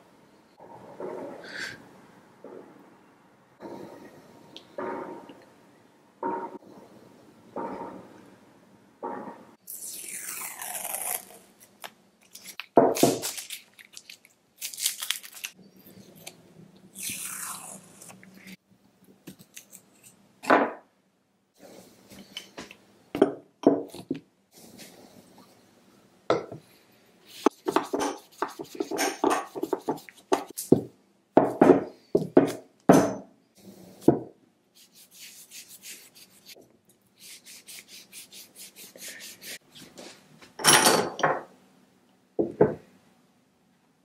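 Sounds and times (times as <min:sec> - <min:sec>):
metal vise parts knocking and clinking: 0:40.6 - 0:41.4.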